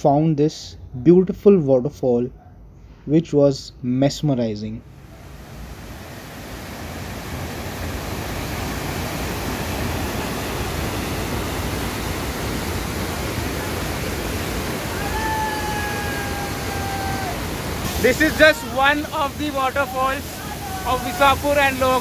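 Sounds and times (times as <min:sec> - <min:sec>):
waterfall rushing: 0:05.0 - 0:22.0.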